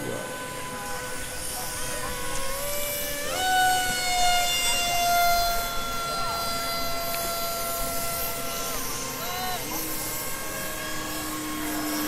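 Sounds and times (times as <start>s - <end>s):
drone motors whining: 0.0s - 12.0s.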